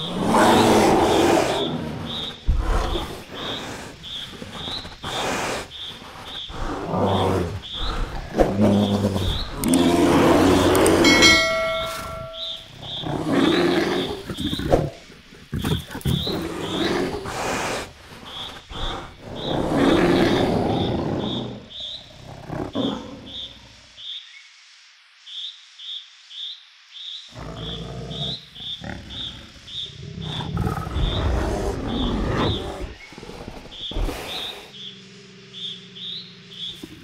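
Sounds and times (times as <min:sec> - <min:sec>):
bears roaring and growling: 0:00.0 - 0:23.4, 0:27.4 - 0:37.0
high chirp: 0:10.8 - 0:12.7.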